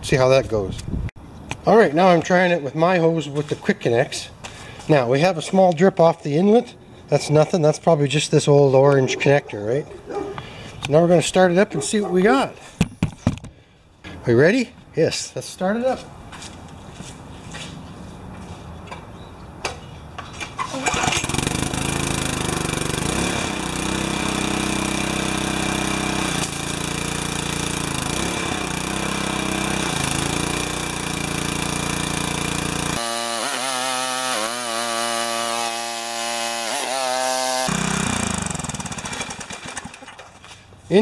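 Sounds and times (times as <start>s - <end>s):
small engine pull-started and running: 20.6s - 40.6s.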